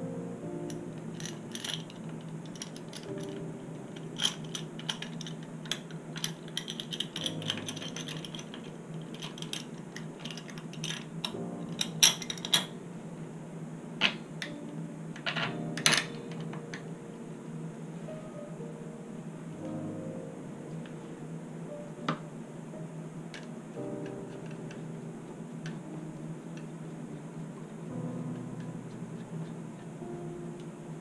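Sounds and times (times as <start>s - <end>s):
metal tool clicking and clinking: 0.7s - 3.4s, 4.0s - 12.7s.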